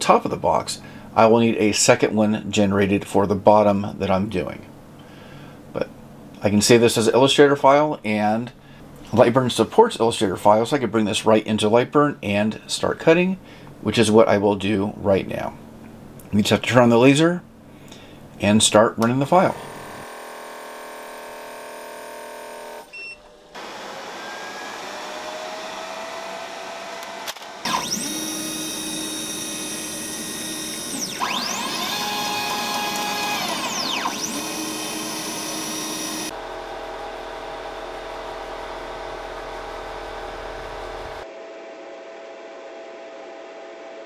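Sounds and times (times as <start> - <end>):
fans and air pump humming: 12.5 - 41.3
motors whining: 19.4 - 41.2.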